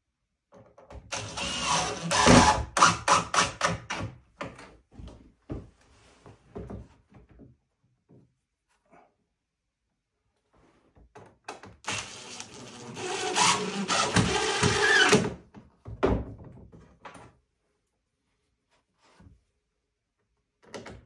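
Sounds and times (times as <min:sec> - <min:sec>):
cordless drill in wood: 0:01.1 - 0:04.0, 0:11.8 - 0:15.4.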